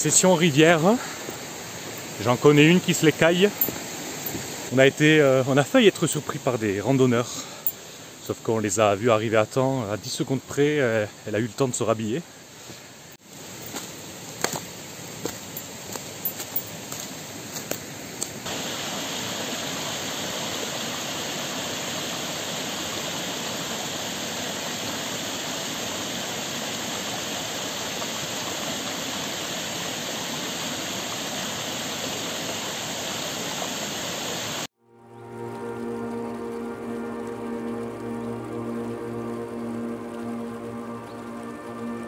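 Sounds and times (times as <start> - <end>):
river water rushing: 0.0 - 8.3, 12.5 - 34.7.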